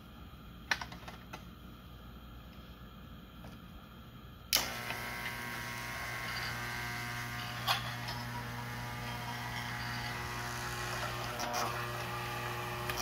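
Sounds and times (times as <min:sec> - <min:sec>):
vibrating platform buzzing: 0:04.6 - 0:13.0.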